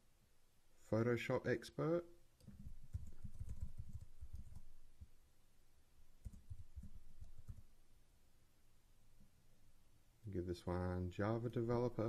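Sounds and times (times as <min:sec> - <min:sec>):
keyboard typing: 0:02.4 - 0:04.9, 0:06.2 - 0:07.7.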